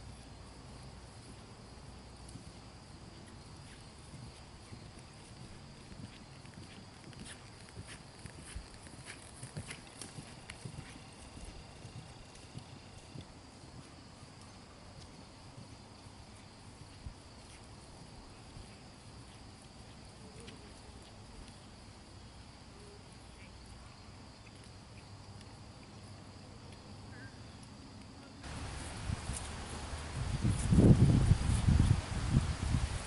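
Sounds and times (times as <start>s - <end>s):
hoofbeats on grass: 1.2s - 21.8s, 28.4s - 33.0s.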